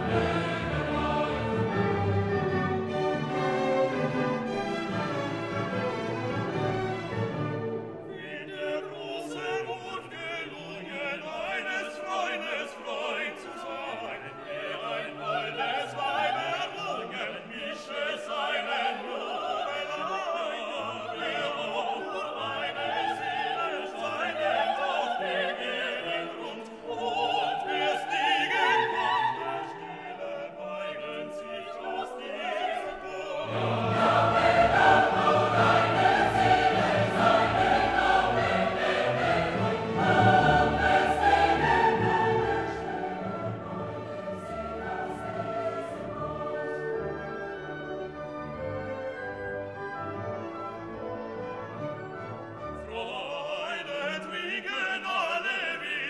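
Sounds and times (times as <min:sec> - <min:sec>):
orchestral music with choir: 0:00.0 - 0:56.0.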